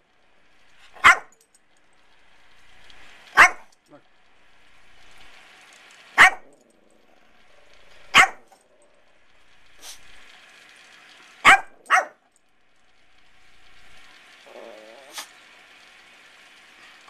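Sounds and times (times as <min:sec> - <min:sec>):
small dog yapping: 0:01.0 - 0:01.3, 0:03.4 - 0:03.6, 0:06.2 - 0:06.5, 0:08.1 - 0:08.4, 0:11.4 - 0:12.2.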